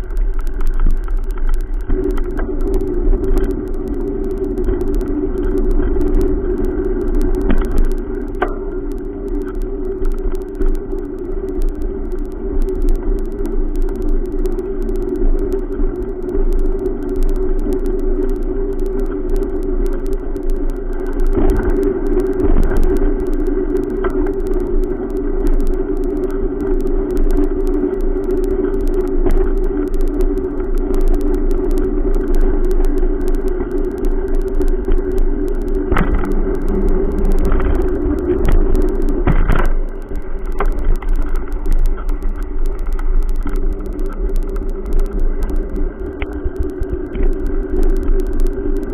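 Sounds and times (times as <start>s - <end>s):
bicycle rolling on concrete: 0.0s - 4.3s.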